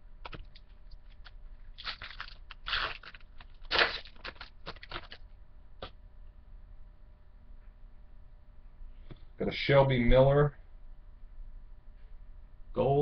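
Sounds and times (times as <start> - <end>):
wrapper tearing and crinkling: 0.2 - 5.2.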